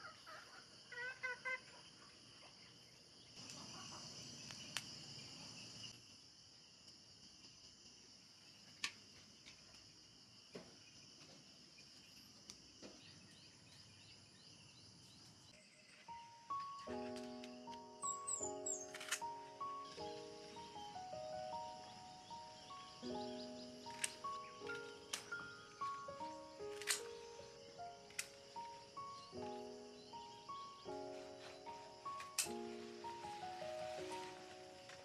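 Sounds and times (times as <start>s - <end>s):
turkey gobble: 0.0s - 1.8s
insects chirring: 0.0s - 35.0s
sharp clicks: 18.8s - 19.4s, 23.9s - 25.5s, 26.6s - 27.2s, 28.1s - 28.6s, 32.2s - 32.6s.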